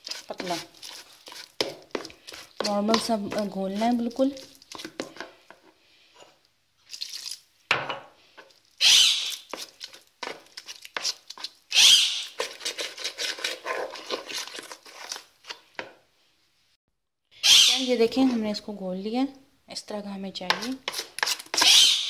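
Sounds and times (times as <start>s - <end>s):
spoon stirring batter in bowl: 0.0s - 7.4s, 9.2s - 16.1s, 20.4s - 21.8s.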